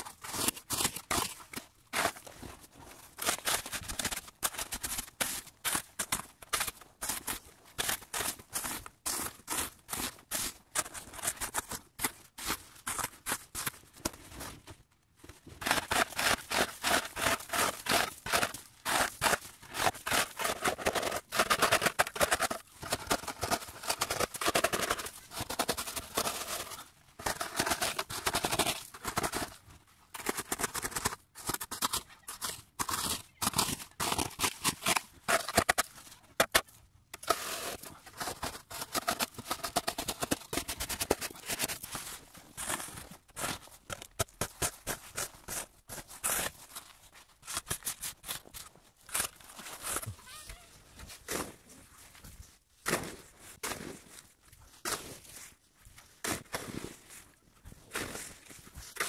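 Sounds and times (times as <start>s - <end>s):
crunching and scraping in snow: 40.8s - 59.0s.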